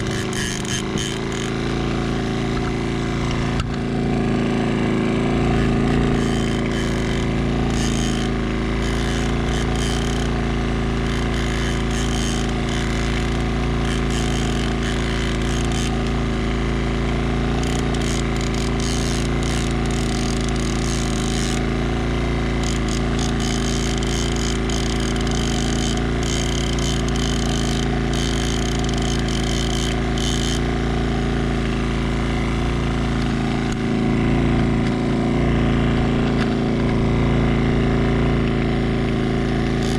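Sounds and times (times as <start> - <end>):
fishing reel clicking and ratcheting: 0.0 - 1.6, 5.9 - 16.2, 17.6 - 21.7, 22.6 - 30.7, 39.7 - 39.9
outboard motor running: 0.0 - 39.9.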